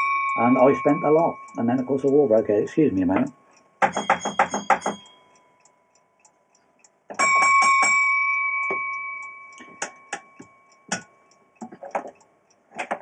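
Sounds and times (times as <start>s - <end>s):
block bell ringing: 0.0s - 2.1s, 3.8s - 5.5s, 7.2s - 11.0s
sharp clicks and knocks: 3.0s - 5.2s, 9.6s - 13.0s.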